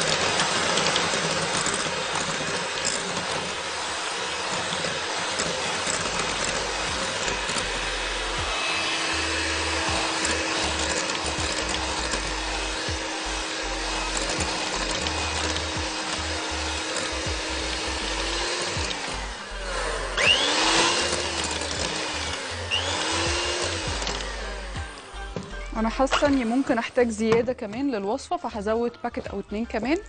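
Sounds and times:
electric hand mixer whipping: 0.0s - 28.4s.

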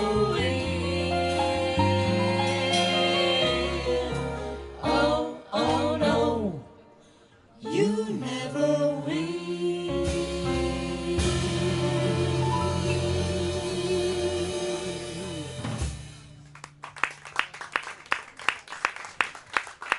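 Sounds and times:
band accompaniment: 0.0s - 6.4s, 9.9s - 16.5s
vocal group singing jazz: 0.0s - 6.8s, 7.6s - 15.9s.

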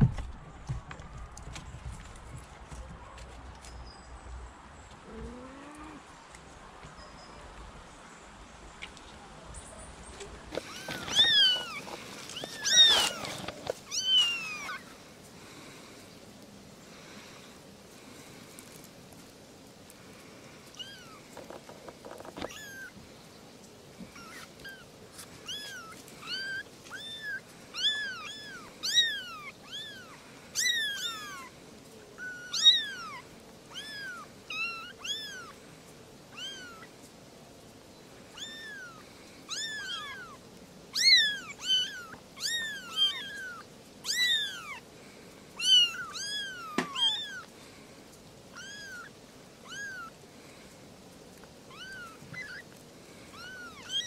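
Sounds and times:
kittens mewing: 10.5s - 14.9s, 24.0s - 31.5s, 32.1s - 35.6s, 38.3s - 44.8s, 45.6s - 47.5s, 48.5s - 50.2s, 51.7s - 52.7s, 53.3s - 54.0s.

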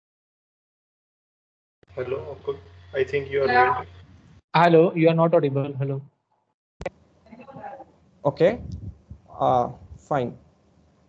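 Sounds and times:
faint indistinct speech: 2.0s - 3.9s.

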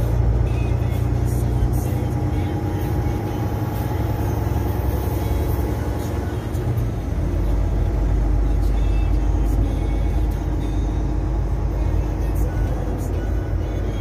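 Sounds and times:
deep rumble: 0.0s - 14.0s
engine drone: 0.0s - 14.0s.

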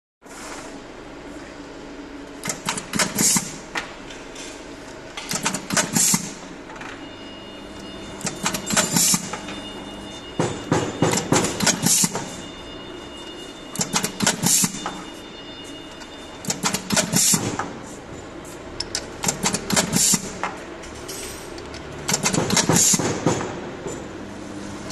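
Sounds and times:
steady machine hum: 0.2s - 24.9s
machine clacking with hiss: 2.4s - 3.6s, 5.2s - 6.4s, 8.2s - 9.4s, 10.4s - 12.4s, 13.8s - 15.0s, 16.4s - 17.7s, 19.2s - 20.4s, 21.1s - 24.1s.

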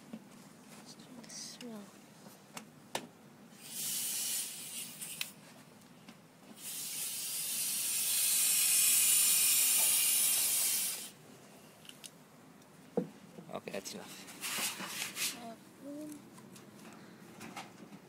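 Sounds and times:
gas spraying into balloon: 3.5s - 5.4s, 6.6s - 11.2s.

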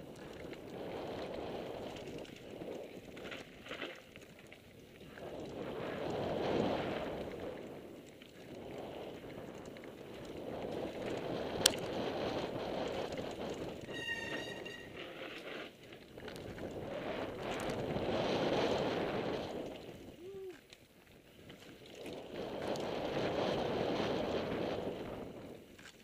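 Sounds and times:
bike tyre roar on dirt: 0.0s - 26.0s
wind rushing over microphone: 5.1s - 15.3s, 16.2s - 20.5s, 22.1s - 25.7s
brake squeal: 13.8s - 15.7s.

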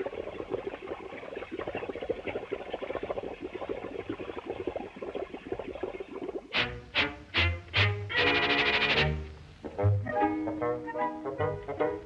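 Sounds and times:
cartoon rapid bubbling: 0.0s - 9.2s.

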